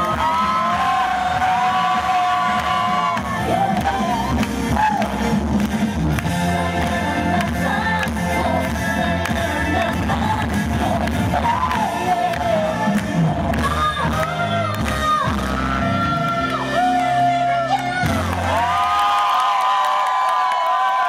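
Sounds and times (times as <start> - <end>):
woman singing into a microphone: 6.6 - 18.5.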